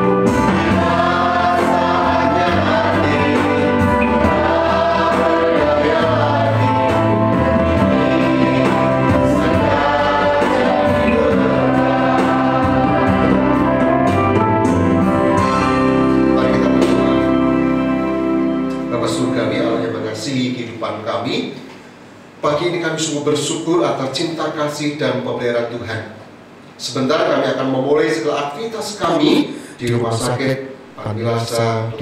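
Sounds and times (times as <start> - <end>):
group singing: 0.0 - 14.4
steady musical backing: 0.0 - 21.7.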